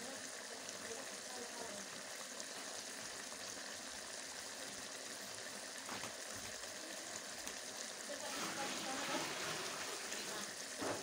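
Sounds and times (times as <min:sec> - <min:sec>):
vegetables sizzling and bubbling: 0:00.0 - 0:11.0.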